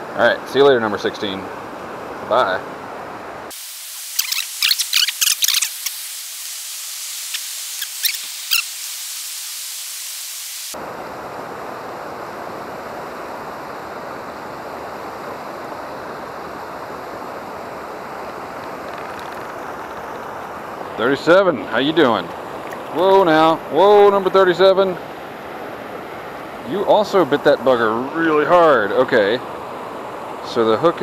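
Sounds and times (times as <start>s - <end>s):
water rushing over rocks: 17.2s - 30.4s.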